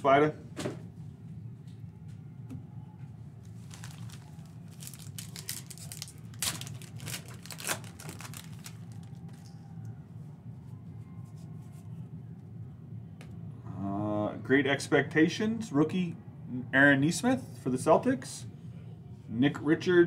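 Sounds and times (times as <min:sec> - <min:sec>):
plastic wrapper tearing and crinkling: 0:03.6 - 0:09.4.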